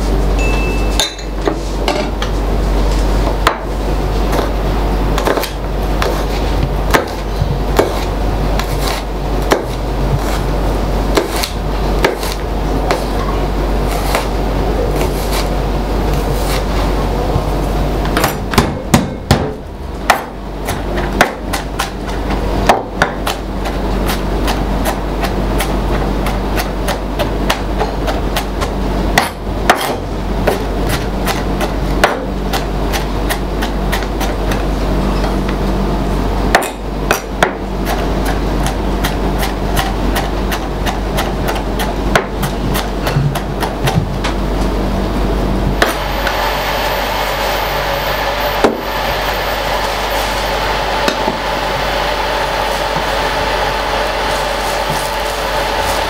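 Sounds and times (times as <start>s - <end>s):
knife chopping on cutting board: 5.2s - 10.5s, 11.1s - 13.1s, 13.9s - 14.3s, 16.2s - 16.7s, 18.1s - 34.6s, 36.5s - 44.4s.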